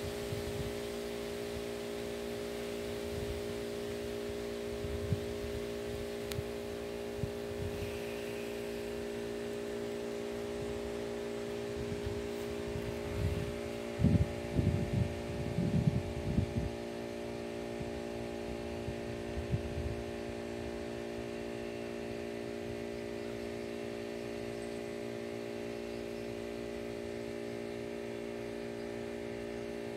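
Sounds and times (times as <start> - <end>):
steady hum: 0.0 - 29.9.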